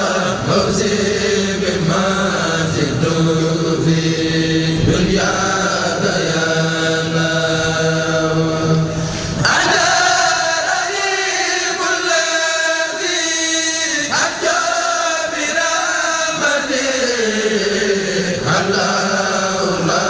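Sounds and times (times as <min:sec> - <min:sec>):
voices chanting: 0:09.4 - 0:20.0.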